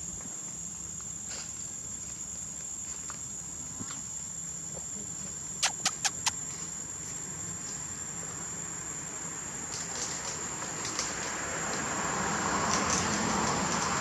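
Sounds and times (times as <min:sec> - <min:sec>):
sharp clicks: 0:05.6 - 0:06.4.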